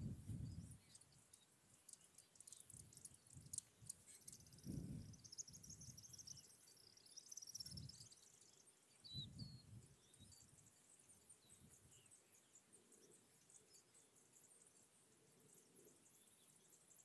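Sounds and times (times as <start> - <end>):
distant bird chirps: 0.3 - 17.0
faint high-pitched ticking: 0.7 - 9.0.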